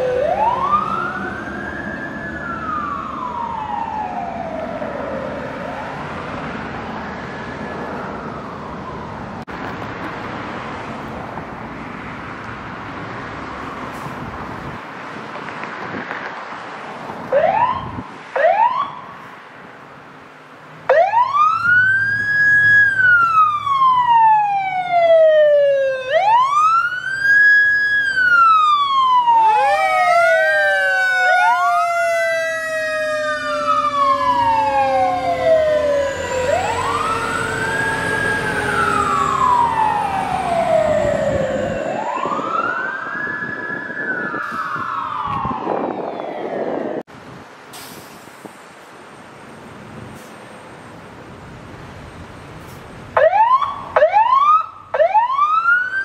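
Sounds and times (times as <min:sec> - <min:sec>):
fire engine siren: 0:00.0 - 0:09.5, 0:17.2 - 0:19.4, 0:20.9 - 0:47.1, 0:51.8 - 0:56.0
second siren wail: 0:00.0 - 0:09.5, 0:17.3 - 0:19.2, 0:20.9 - 0:47.1, 0:53.2 - 0:56.0.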